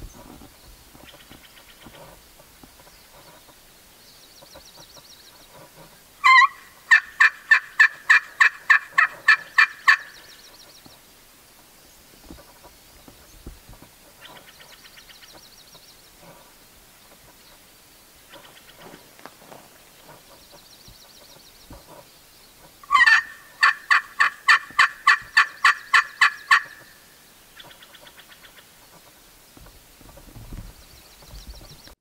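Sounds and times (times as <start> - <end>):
friction turkey call yelps: 6.2 - 10.2, 22.8 - 27.0.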